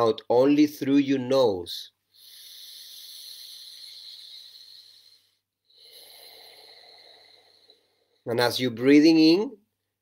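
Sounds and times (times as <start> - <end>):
man breathing through nose: 2.1 - 8.2.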